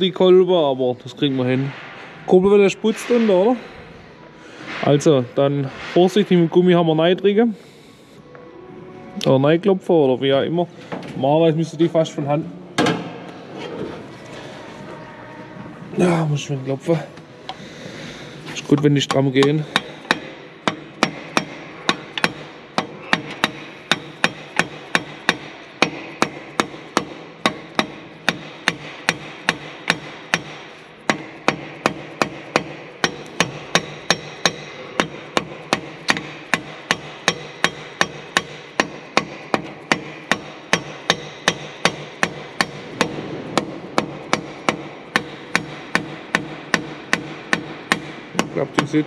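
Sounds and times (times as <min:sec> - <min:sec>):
rubber mallet knocking metal: 0:19.0 - 0:49.0.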